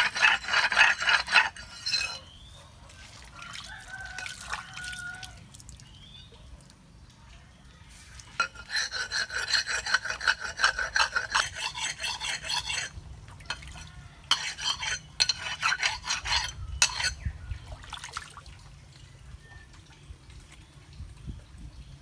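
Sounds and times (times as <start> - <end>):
knife blade scraping on whetstone: 0.0 - 2.5, 8.3 - 17.3.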